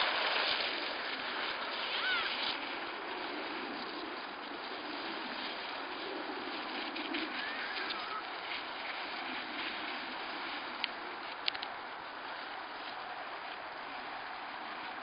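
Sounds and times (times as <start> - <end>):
wind across microphone: 0.0 - 15.0
distant shout: 1.9 - 2.4, 7.4 - 8.4.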